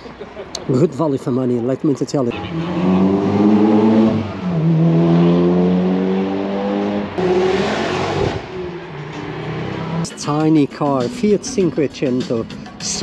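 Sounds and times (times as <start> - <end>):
car engine accelerating: 2.3 - 10.1.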